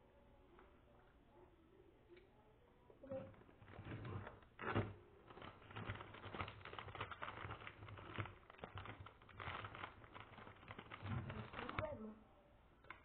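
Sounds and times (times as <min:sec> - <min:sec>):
crackling and rustling handling: 0:03.0 - 0:12.2.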